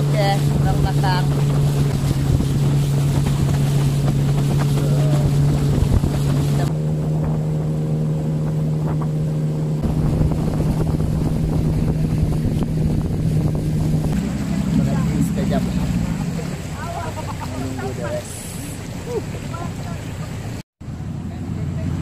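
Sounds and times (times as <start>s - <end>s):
wind noise on microphone: 0.0s - 15.2s
outboard motor running: 0.0s - 22.0s.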